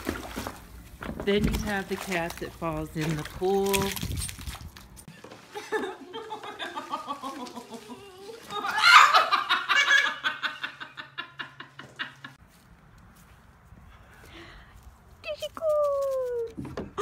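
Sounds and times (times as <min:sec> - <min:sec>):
hearty laughter: 0:05.4 - 0:12.4.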